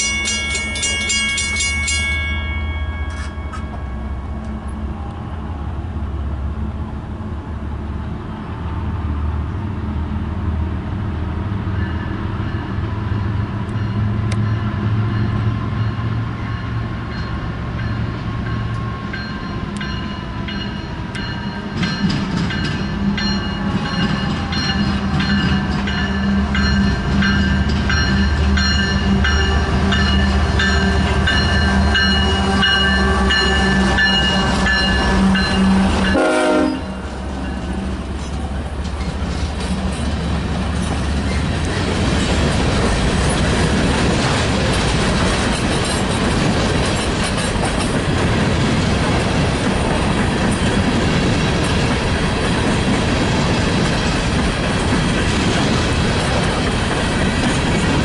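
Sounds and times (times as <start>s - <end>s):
higher ringing with rapid ticks: 0.0s - 4.6s
diesel locomotives rumbling: 0.0s - 58.0s.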